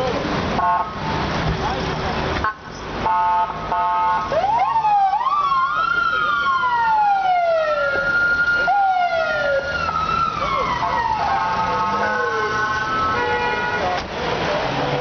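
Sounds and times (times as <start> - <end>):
police car siren: 3.0 - 13.5.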